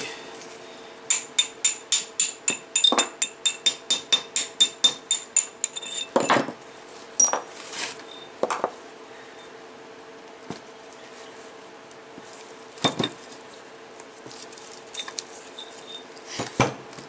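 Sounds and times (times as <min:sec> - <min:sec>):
hammer striking metal: 0:01.1 - 0:06.4.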